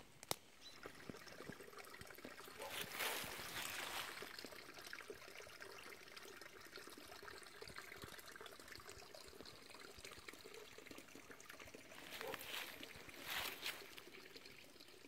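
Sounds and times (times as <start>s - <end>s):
trickle of running water: 0.5s - 15.0s
fine crackle: 12.0s - 14.0s.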